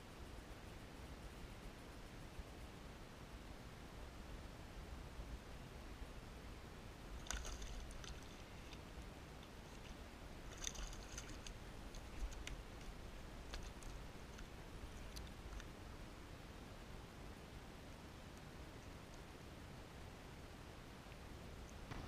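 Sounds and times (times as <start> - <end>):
faint low rumble: 0.0 - 22.0
fishing tackle clicking and rattling: 7.2 - 9.9, 10.5 - 15.7.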